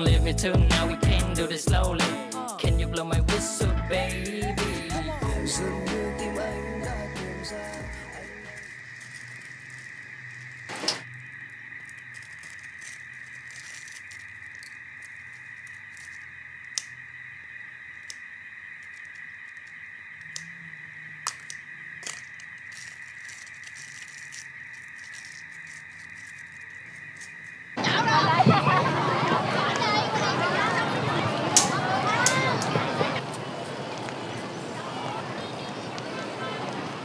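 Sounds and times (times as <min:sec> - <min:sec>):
steady hiss: 0:04.9 - 0:27.8
light crinkling of nori: 0:07.6 - 0:17.0, 0:21.2 - 0:27.6.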